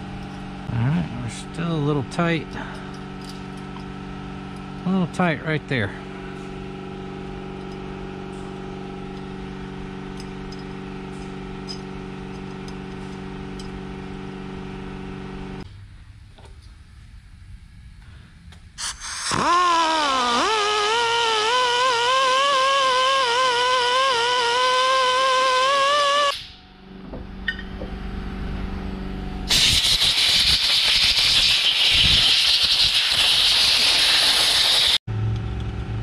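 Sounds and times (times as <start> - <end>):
steady mechanical hum: 0.0 - 33.3, 34.7 - 36.0
die grinder whining: 19.2 - 26.4.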